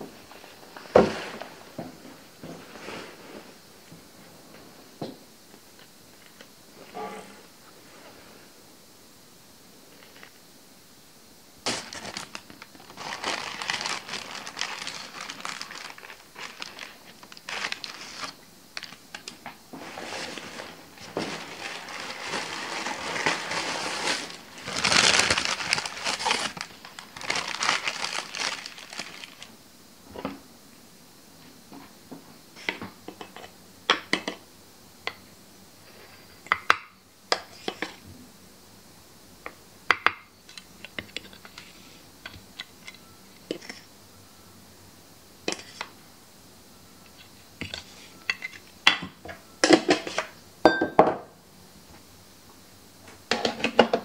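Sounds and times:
paper bag crinkling: 11.6s - 19.0s, 19.8s - 29.5s.

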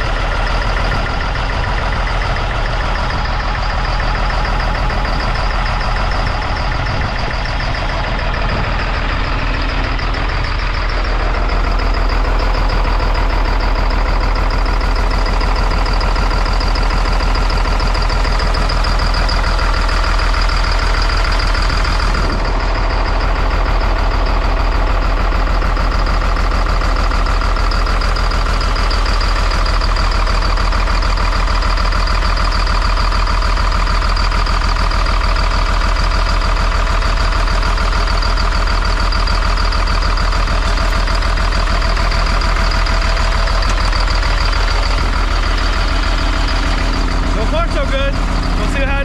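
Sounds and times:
diesel engine idling: 0.0s - 49.0s
high turbo whine: 0.0s - 49.0s.

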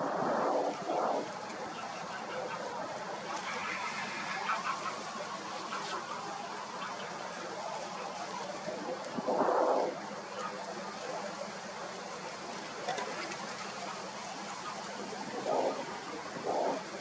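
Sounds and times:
steady background hiss: 0.0s - 17.0s
geese honking: 1.8s - 8.5s.

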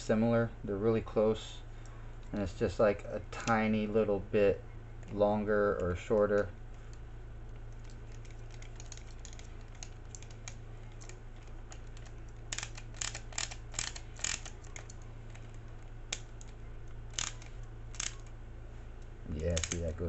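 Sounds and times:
screwdriver clicking on plastic: 7.8s - 18.3s.

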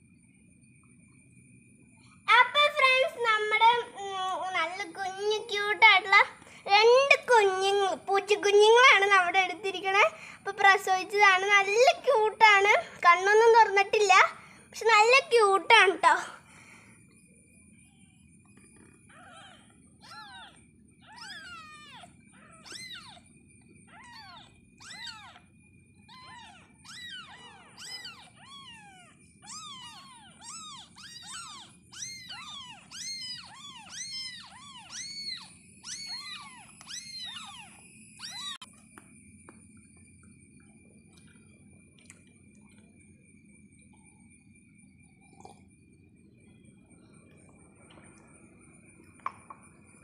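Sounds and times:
kittens mewing: 18.8s - 38.6s.

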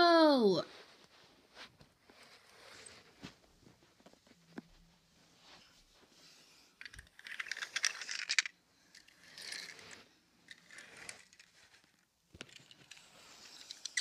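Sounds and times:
metal toy cars clinking and rattling: 6.8s - 14.0s.

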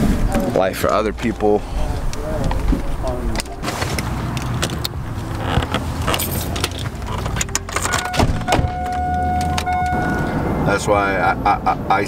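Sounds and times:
car door and keys clicking: 3.3s - 10.4s
high electronic tone: 7.8s - 10.4s.

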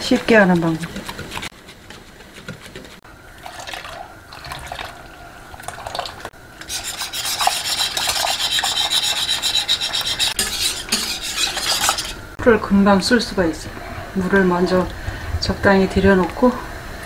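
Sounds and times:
whisk beating paste in bowl: 0.0s - 3.0s, 6.6s - 12.2s
stirring in pot of water: 0.0s - 12.4s.

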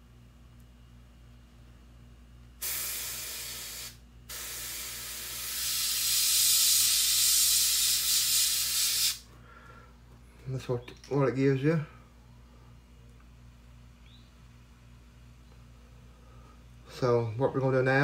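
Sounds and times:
airbrush spraying hiss: 2.6s - 9.3s.

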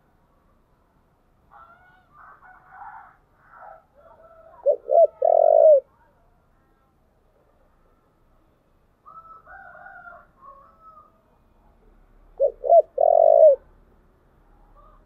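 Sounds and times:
faint drawn-out bird call: 3.4s - 5.9s
dove cooing: 4.1s - 5.9s, 12.4s - 13.7s.

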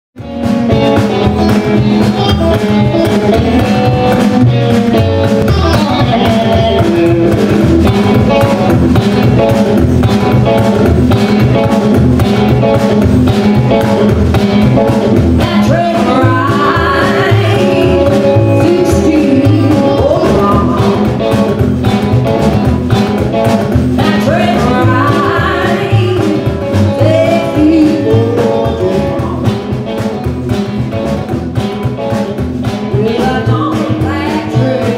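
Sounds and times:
band playing rock and roll: 0.2s - 34.9s
woman singing: 15.4s - 21.3s, 24.0s - 29.6s, 32.9s - 34.9s.

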